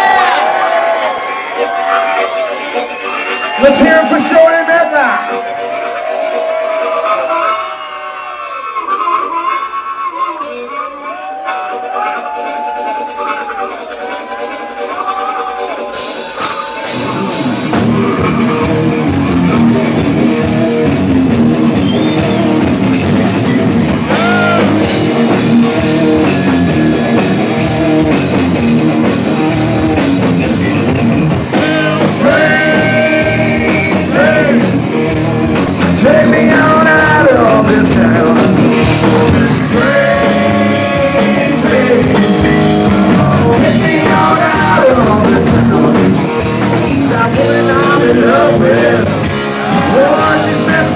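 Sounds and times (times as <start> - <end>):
live rock band playing: 0.0 - 50.9
singer vocals: 29.1 - 50.9.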